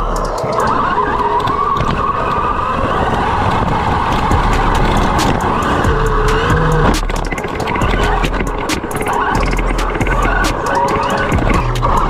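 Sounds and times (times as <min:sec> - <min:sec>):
radio-controlled car motor whine: 0:03.0 - 0:12.0.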